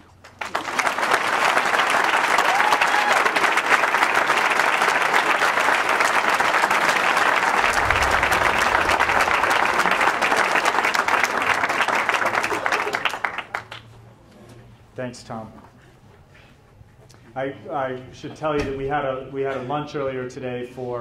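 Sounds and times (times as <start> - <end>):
audience applauding: 0.0 - 13.9.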